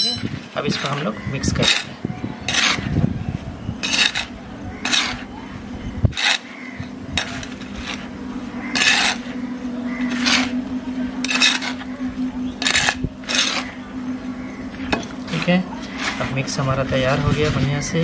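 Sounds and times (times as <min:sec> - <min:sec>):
metal trowel scraping soil: 0:02.5 - 0:02.9, 0:03.8 - 0:05.3, 0:06.1 - 0:06.5, 0:07.2 - 0:08.1, 0:08.7 - 0:09.3, 0:10.0 - 0:10.6, 0:11.2 - 0:11.8, 0:12.6 - 0:13.8, 0:15.3 - 0:18.0.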